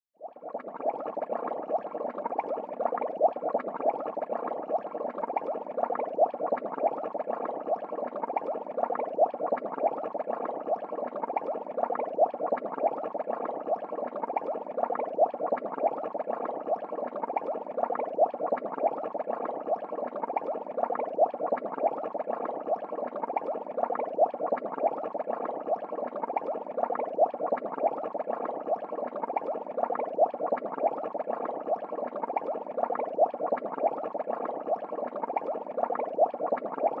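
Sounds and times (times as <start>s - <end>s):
aquarium water bubbling: 0.2s - 37.0s
water popping: 35.4s - 37.0s.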